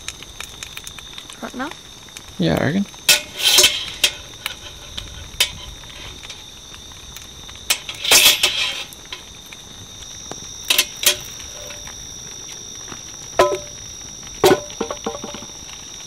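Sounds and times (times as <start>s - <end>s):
metal clinks on camp oven: 3.0s - 6.4s, 7.7s - 9.3s, 10.6s - 11.8s, 13.4s - 13.8s, 14.4s - 15.5s
scraping metal rattle: 3.1s - 6.4s, 7.7s - 9.2s.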